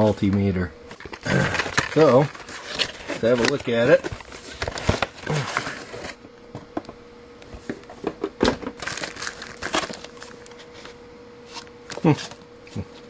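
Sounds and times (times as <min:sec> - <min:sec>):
plastic packaging crinkling: 0:01.1 - 0:06.2, 0:08.8 - 0:10.7.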